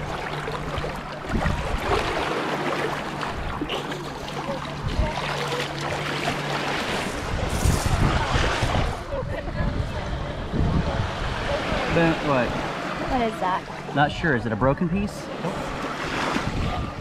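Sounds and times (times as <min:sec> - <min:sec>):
steady low hum: 0:00.0 - 0:16.2
surf sloshing and lapping: 0:00.0 - 0:17.0.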